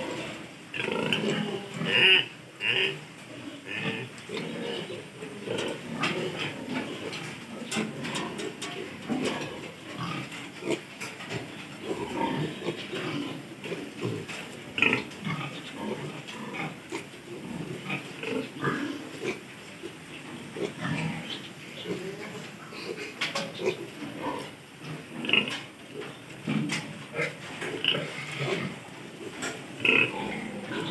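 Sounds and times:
piglets grunting: 0.0s - 30.9s.

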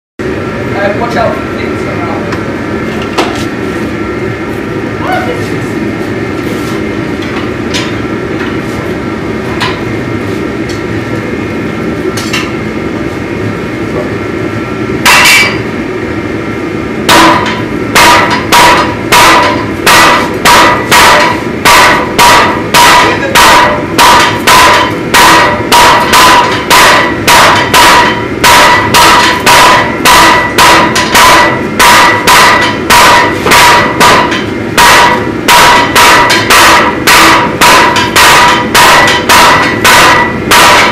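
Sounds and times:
hammer strikes ringing on anvil: 17.1s - 40.9s.

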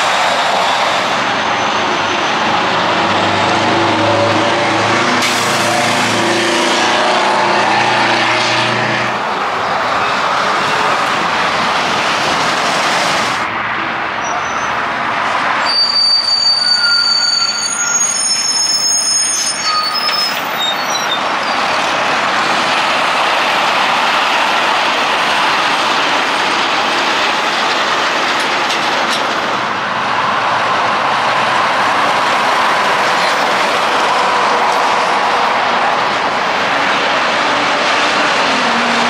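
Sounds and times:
heavy vehicle traffic: 0.0s - 39.0s
brakes squealing: 15.6s - 22.0s.

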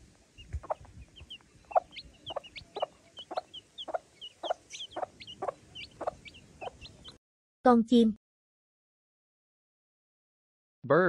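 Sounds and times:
chicks peeping: 0.3s - 7.2s
hen clucking: 0.4s - 7.2s.

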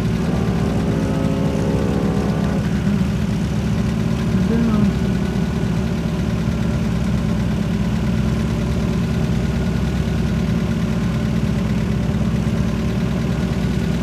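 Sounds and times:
engine idling: 0.0s - 14.0s.

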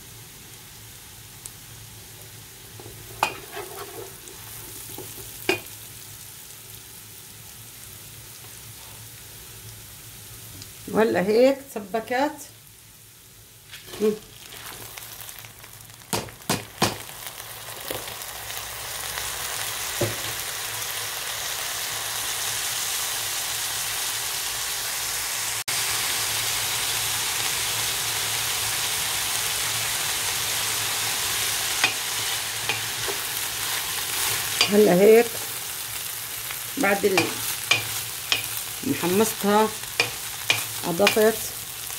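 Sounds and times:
rice sizzling in hot fat: 0.0s - 41.9s.

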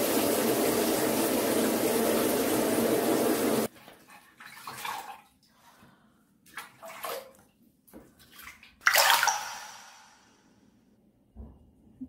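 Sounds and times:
water sloshing and splashing: 3.6s - 5.8s, 6.4s - 10.3s.

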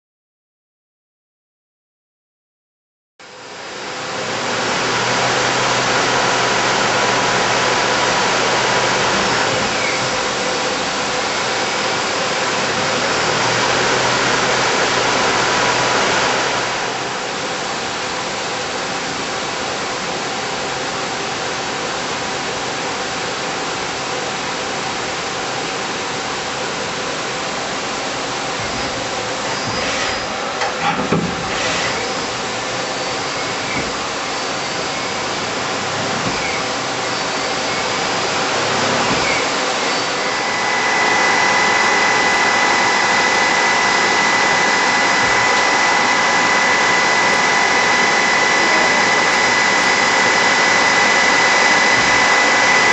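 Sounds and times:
lathe spindle whirring and cutting: 3.5s - 19.2s, 27.2s - 52.9s.

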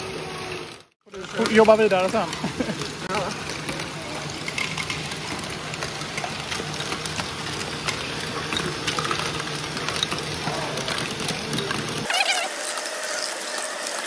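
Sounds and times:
steady motor hum: 0.0s - 14.0s
plastic clicks and clatters: 1.1s - 12.1s.

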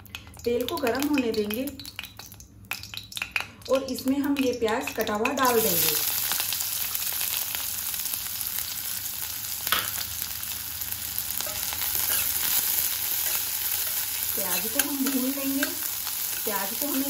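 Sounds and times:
onions sizzling in oil: 0.0s - 17.0s
steel spoon stirring: 11.4s - 17.0s.

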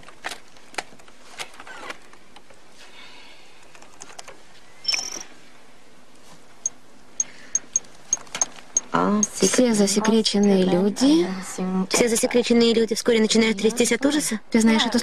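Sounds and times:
short computer beep: 4.9s - 5.2s.

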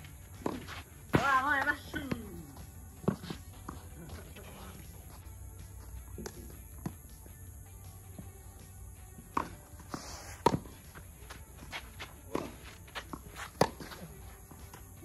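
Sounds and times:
footsteps on court: 0.0s - 7.1s, 9.3s - 15.0s
tennis ball hits and bounces: 0.3s - 4.3s, 6.2s - 7.1s, 9.2s - 15.0s.

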